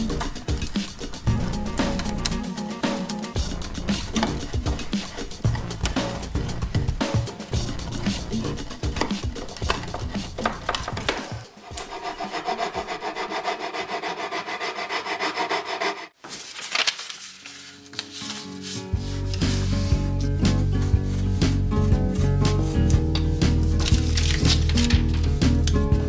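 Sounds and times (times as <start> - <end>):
background music with steady beat: 0.0 - 13.3, 18.0 - 26.0
chisel scraping wood: 0.0 - 16.2
hand file stroking wood: 0.0 - 16.2, 18.1 - 23.0.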